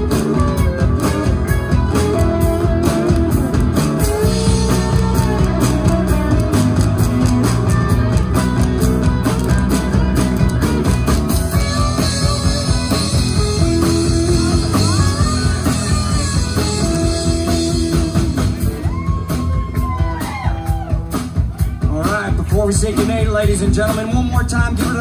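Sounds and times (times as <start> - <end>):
bass and drums: 0.0 - 25.0
electric guitar lead: 0.0 - 25.0.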